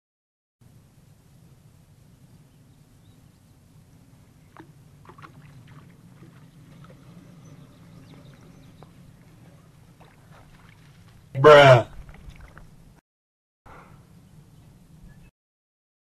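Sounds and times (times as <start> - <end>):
low steady rumble: 0.6 - 13.0, 13.7 - 15.3
fish splashing: 4.4 - 11.3.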